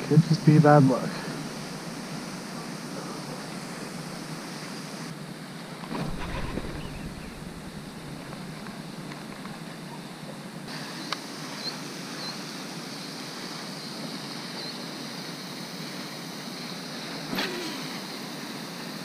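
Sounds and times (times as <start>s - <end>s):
brief thump: 5.9s - 8.5s.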